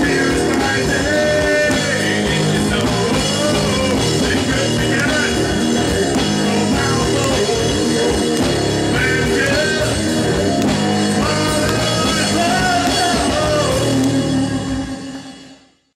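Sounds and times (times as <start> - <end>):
person singing lead vocal: 0.0 - 15.7
bass guitar: 0.0 - 15.9
drum kit: 0.0 - 15.9
electric guitar: 0.0 - 15.9.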